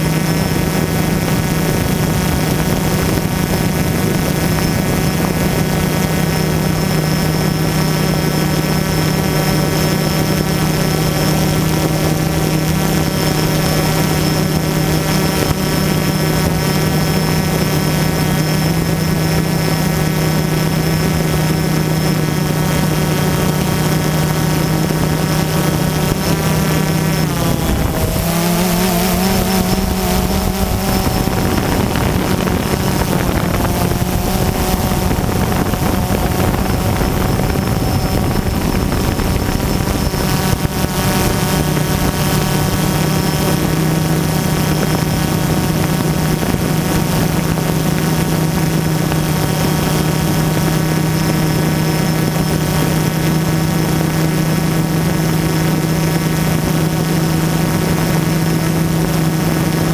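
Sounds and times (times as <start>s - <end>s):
drone propellers whining: 0.0s - 59.9s.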